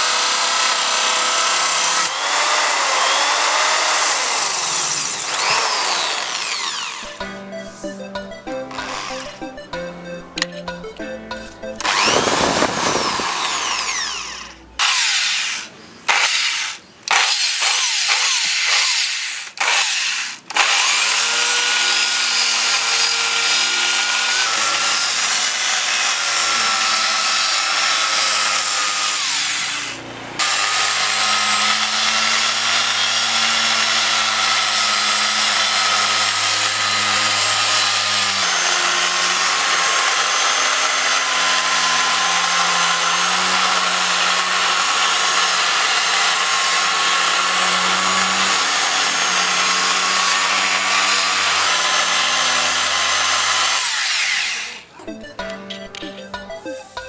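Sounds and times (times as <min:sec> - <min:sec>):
electric drill with hole saw: 0:00.0 - 0:07.2, 0:08.7 - 0:09.3, 0:11.8 - 0:54.9
orbital sander on plywood: 0:00.0 - 0:08.0, 0:08.6 - 0:09.4, 0:11.8 - 0:54.9.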